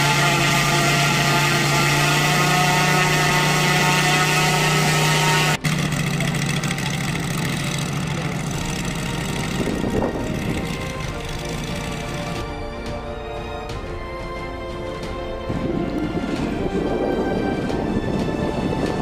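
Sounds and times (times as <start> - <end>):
model radial engine idling: 5.4 - 12.4.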